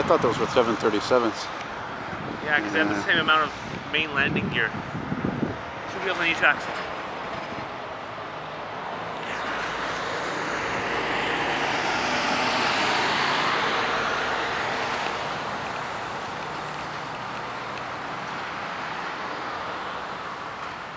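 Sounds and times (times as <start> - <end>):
jet airliner passing overhead: 8.8 - 16.7.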